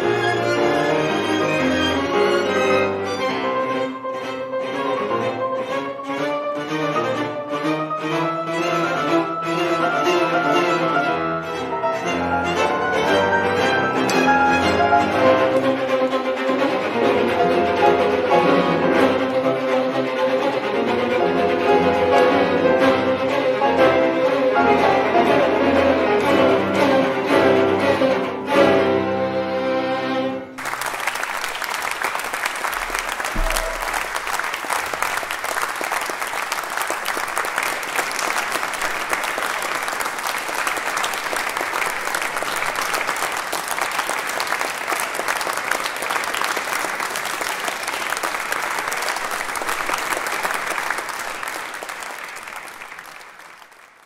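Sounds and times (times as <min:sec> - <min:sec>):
bowed strings playing: 0:00.0 - 0:30.6, 0:32.8 - 0:35.0
audience applause: 0:30.6 - 0:54.0.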